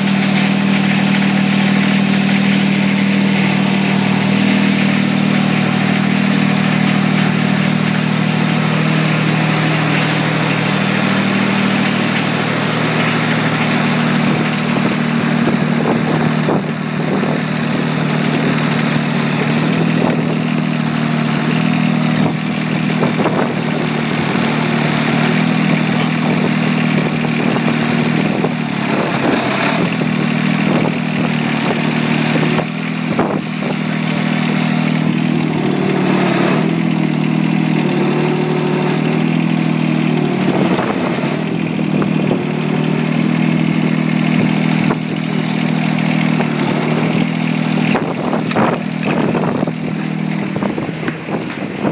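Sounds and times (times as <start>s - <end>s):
diesel tractor engine running: 0.0s - 51.9s
short engine knocks: 38.9s - 51.9s.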